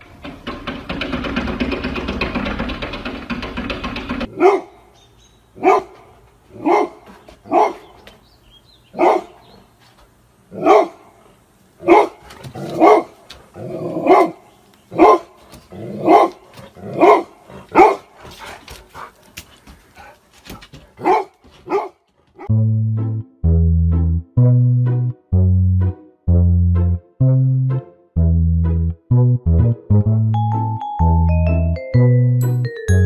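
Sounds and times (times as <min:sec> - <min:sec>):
dog barking: 0:04.3 - 0:04.9, 0:05.6 - 0:07.9, 0:09.0 - 0:09.4, 0:10.6 - 0:11.2, 0:11.8 - 0:13.2, 0:14.0 - 0:15.4, 0:16.0 - 0:18.2, 0:21.0 - 0:22.5.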